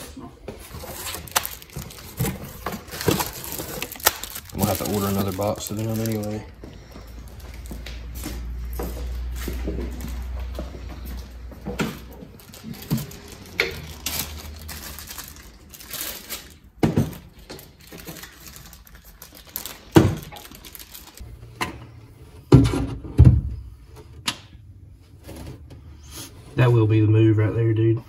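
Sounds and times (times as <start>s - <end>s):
plastic crinkling: 0.6s - 8.6s, 12.1s - 21.2s.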